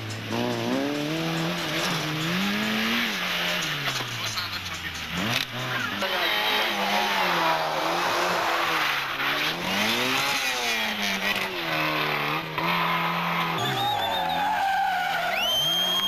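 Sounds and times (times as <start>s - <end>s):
two-stroke engine: 0.0s - 7.0s
car engine revving: 0.0s - 16.0s
tyre squeal: 12.8s - 16.0s.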